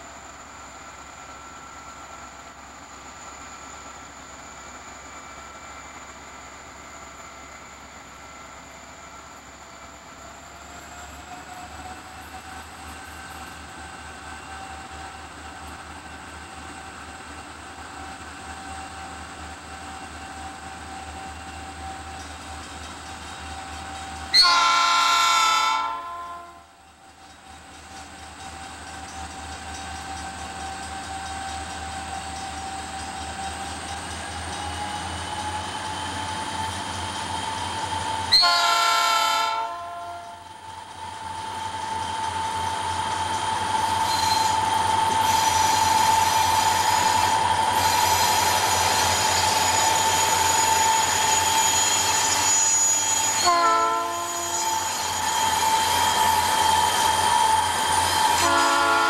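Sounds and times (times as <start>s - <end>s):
locomotive chime horn: 24.3s - 26.7s, 38.3s - 40.4s, 53.2s - 54.9s, 58.3s - 59.0s.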